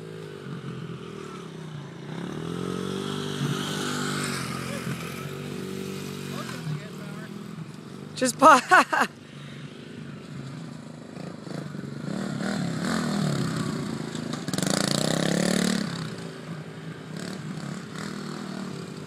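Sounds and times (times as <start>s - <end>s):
dirt bike engine revving: 0.0s - 7.6s, 11.0s - 19.0s.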